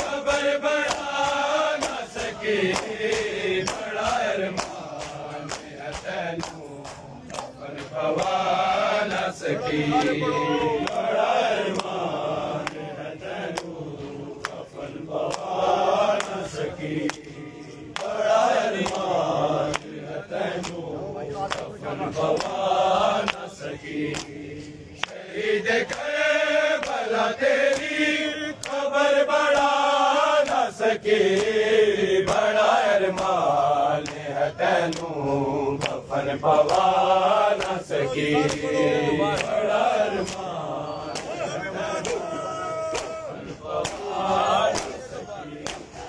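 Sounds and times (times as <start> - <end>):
hands slapping bare chests: 0.0 - 8.5, 10.8 - 12.9, 13.5 - 13.8, 14.4 - 14.6, 15.2 - 16.4, 17.9 - 21.7, 22.3 - 23.5, 24.1 - 24.4, 25.0 - 26.2, 26.8 - 27.1, 27.7 - 30.7, 32.2 - 35.2, 35.8 - 38.7, 39.3 - 39.6, 40.2 - 40.6, 42.0 - 45.0, 45.6 - 46.0
men chanting together: 0.0 - 46.0.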